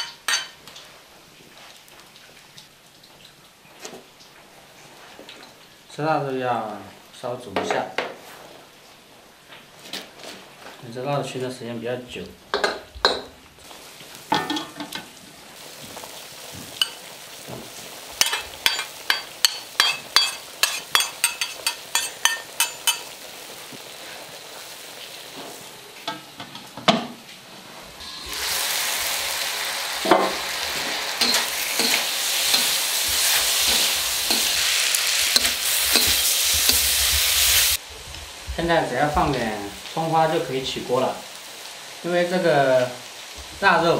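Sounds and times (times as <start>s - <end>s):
food frying sizzle: 0.0s - 43.9s
metal spatula scraping in wok: 30.5s - 37.8s.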